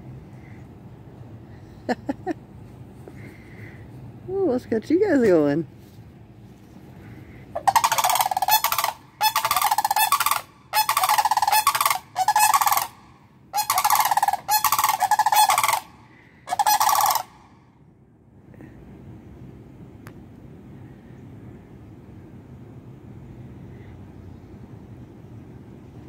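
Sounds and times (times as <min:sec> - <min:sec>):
cranes rattling calls: 0:07.0 - 0:17.5.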